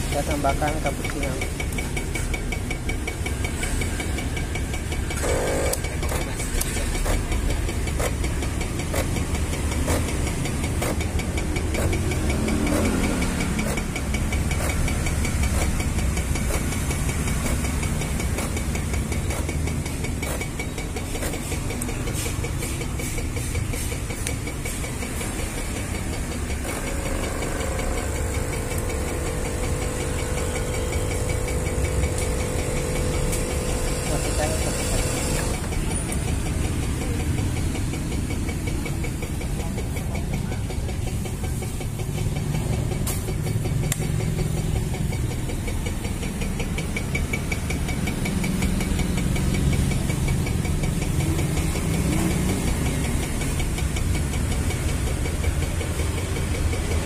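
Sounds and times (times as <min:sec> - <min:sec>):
steady tone: 0:00.0 - 0:41.6
espresso machine pump running: 0:00.0 - 0:57.0.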